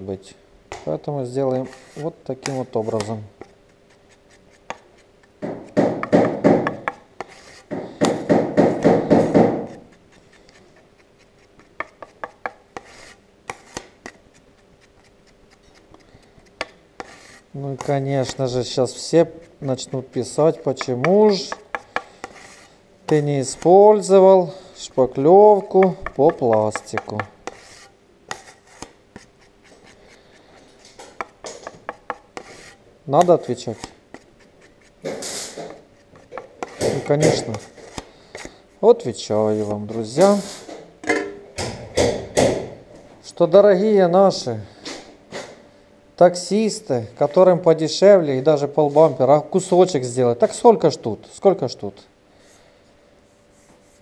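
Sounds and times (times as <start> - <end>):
spreader blade scraping board: 25.6 - 32.8.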